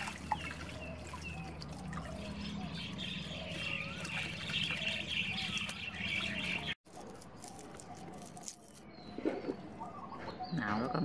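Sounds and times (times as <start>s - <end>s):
hose water splashing into tub: 0.0s - 2.3s.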